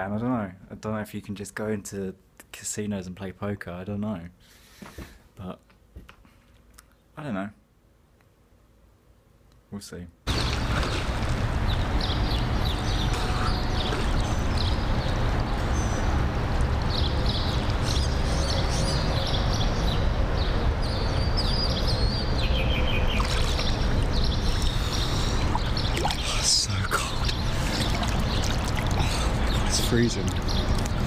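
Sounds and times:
water sloshing and lapping: 10.3 - 17.8, 23.0 - 31.0
birds chirping: 10.3 - 31.0.

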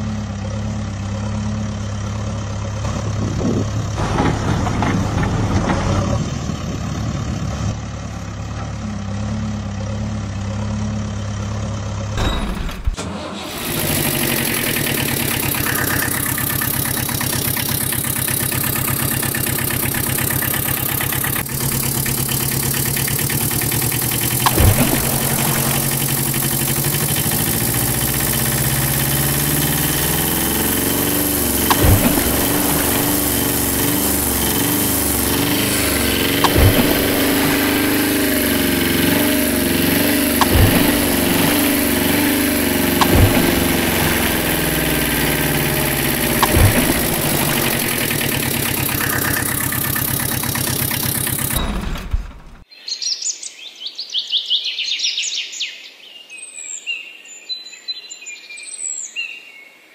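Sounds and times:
truck engine idling: 0.0 - 52.6.

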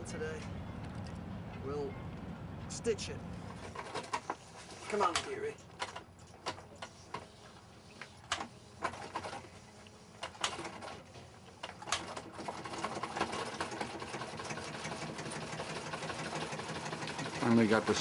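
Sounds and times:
sewing machine running: 11.8 - 18.0.

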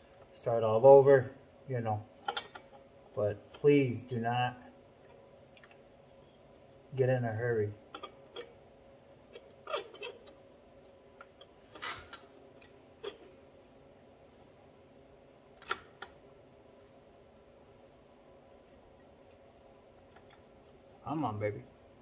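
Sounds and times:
light metallic clicks and scrapes: 7.9 - 8.6, 9.3 - 10.4.

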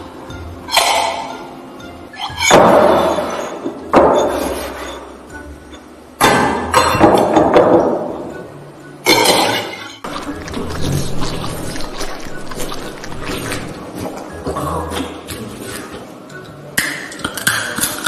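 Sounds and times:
metal bowls clanging: 0.7 - 7.7, 9.0 - 10.1.

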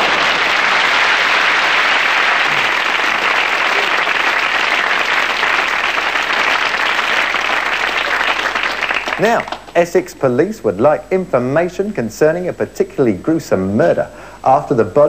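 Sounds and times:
audience applauding: 0.0 - 9.8.

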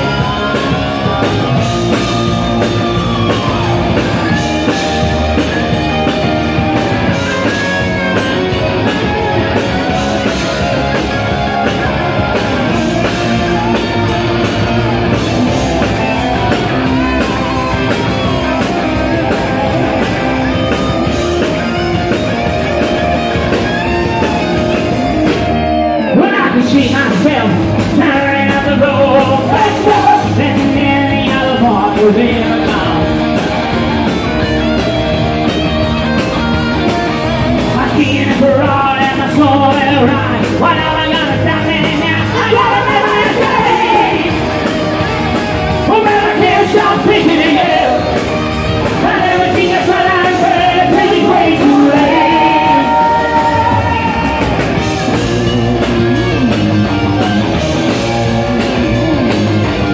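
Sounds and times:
live rock band playing: 0.0 - 59.9
man singing into microphone: 26.1 - 33.1, 37.8 - 44.4, 45.9 - 48.1, 49.0 - 54.3.

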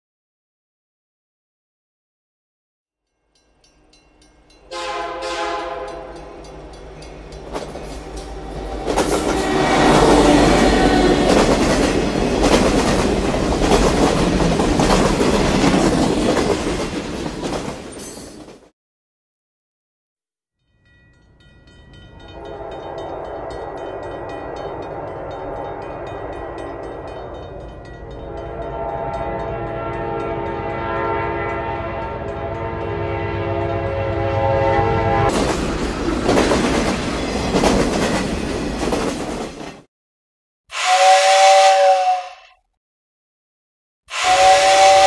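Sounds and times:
two-tone train whistle: 4.7 - 6.6, 8.1 - 11.5, 22.3 - 27.0, 28.3 - 35.3, 40.7 - 42.6, 44.1 - 45.0.

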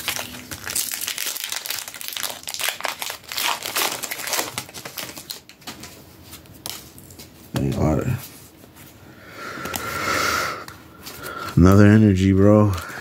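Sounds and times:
foil wrapper crinkling: 0.0 - 7.4.

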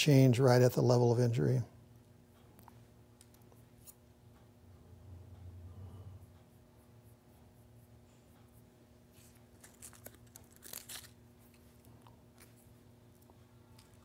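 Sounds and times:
steady low hum: 0.0 - 14.0
faint rustles and clicks: 6.4 - 14.0.

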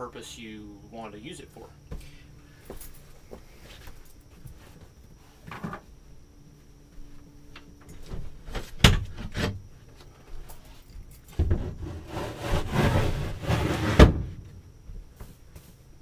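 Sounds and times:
wood rubbing and sliding: 11.4 - 14.2.

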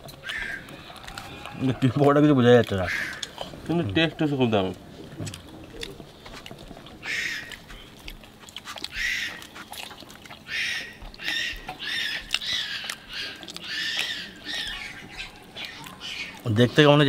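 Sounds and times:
small animal chirping: 0.2 - 1.6, 5.8 - 16.9.

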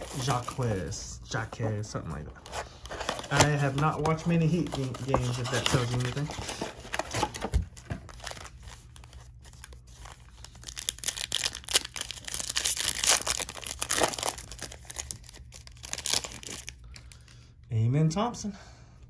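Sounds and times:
foil wrapper tearing and crinkling: 0.0 - 0.7, 8.1 - 17.2.

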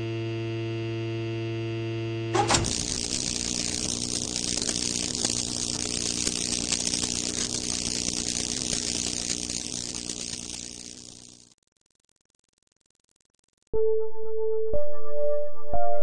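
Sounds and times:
steady low hum: 0.0 - 11.5
electrical crackling hiss: 2.4 - 11.6.

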